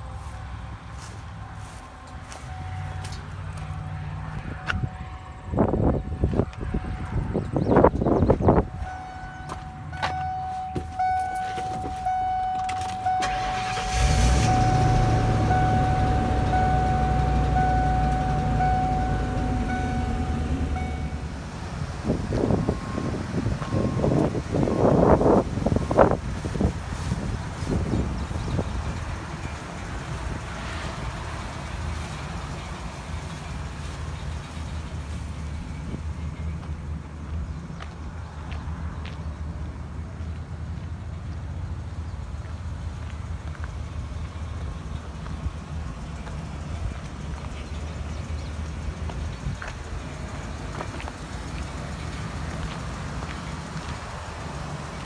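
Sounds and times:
dashboard warning chime: 2.4s - 3.0s, 8.6s - 21.3s, 22.6s - 25.0s
engine cranking and idling: 8.8s - 37.4s.

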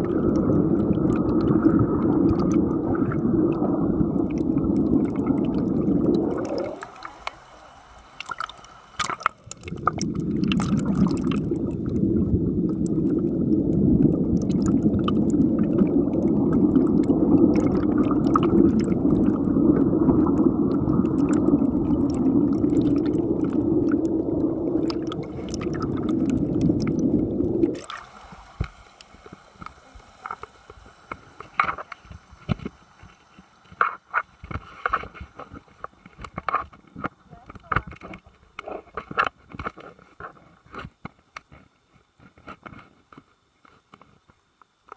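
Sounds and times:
water drips: 0.0s - 34.6s
muffled underwater rushing and bubbling: 0.0s - 42.4s.

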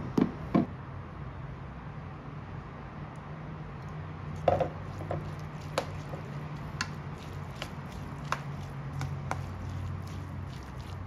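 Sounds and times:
filling squishing: 4.3s - 11.0s.

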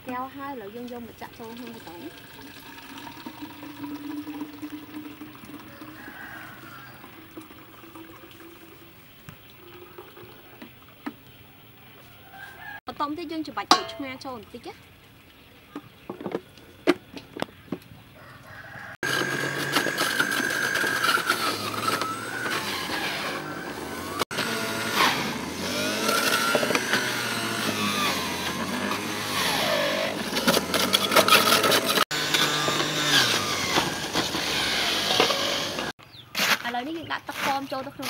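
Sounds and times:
juicer motor running: 0.9s - 8.8s, 18.7s - 35.9s.

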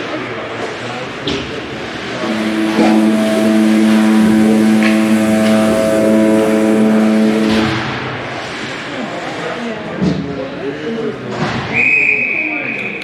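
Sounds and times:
game horn long blast: 2.2s - 8.4s.

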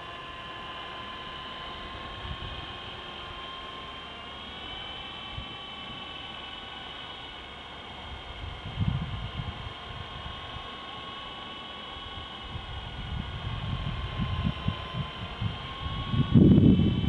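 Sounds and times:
rc helicopter motor whine: 0.0s - 17.0s
wind rumbling on microphone: 8.4s - 10.3s, 12.4s - 17.0s.

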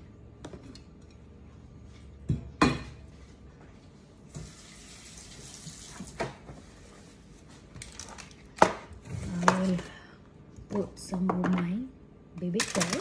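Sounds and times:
kitchen tap running: 4.4s - 6.4s.

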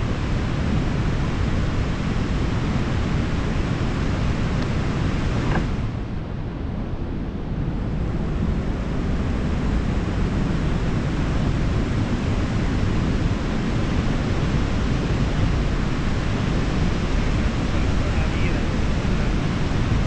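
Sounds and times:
wind buffeting microphone: 0.0s - 20.0s
river rushing: 8.0s - 20.0s.

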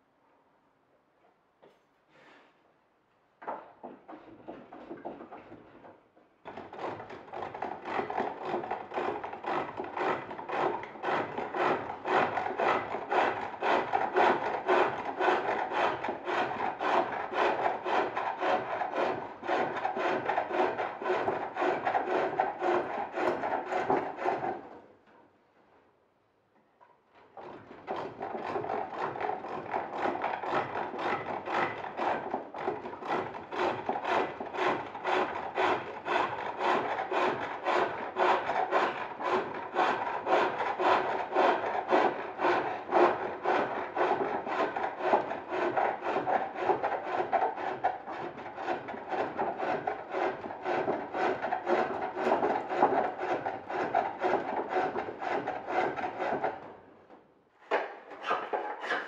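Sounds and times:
chisel shaving wood on lathe: 6.5s - 24.8s, 27.4s - 56.7s.

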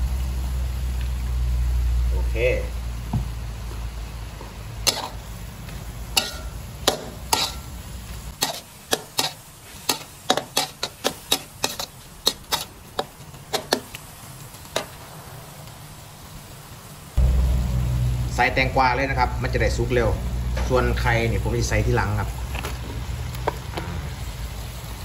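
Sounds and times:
light sizzle: 0.0s - 25.0s
metal spatula clanking on wok: 4.8s - 5.2s, 6.1s - 7.8s, 8.4s - 13.9s
low hum: 17.2s - 21.1s.

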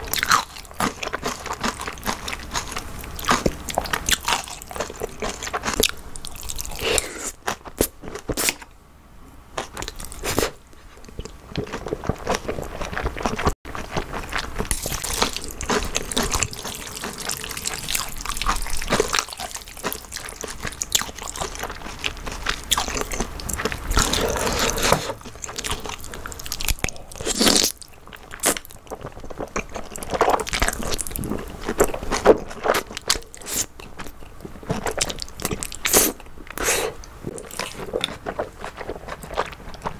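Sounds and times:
chewing noodles: 9.6s - 39.9s
noodles being slurped: 23.7s - 26.6s.

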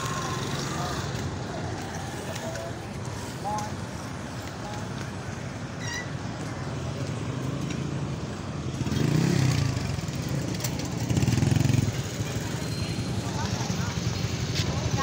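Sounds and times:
motorcycle engines running: 0.0s - 15.0s
traffic hum: 0.0s - 15.0s.

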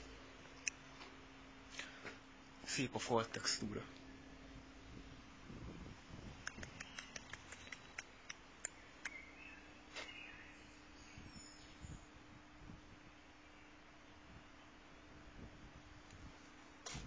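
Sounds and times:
small sharp clicks: 6.4s - 9.2s.

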